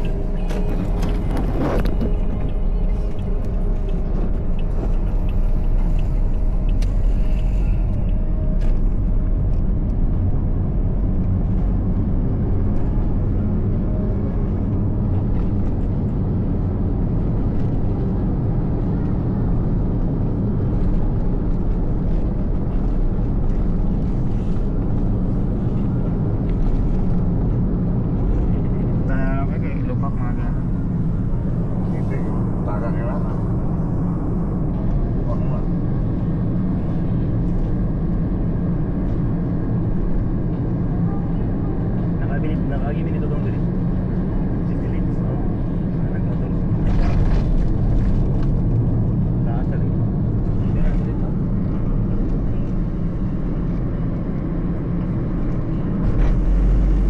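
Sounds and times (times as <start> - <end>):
road traffic rumble: 0.0 - 57.0.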